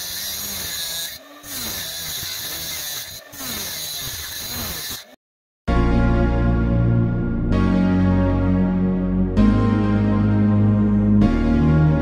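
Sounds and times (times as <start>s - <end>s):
mini circular saw cutting wood: 0.0s - 5.2s
music: 5.7s - 12.0s.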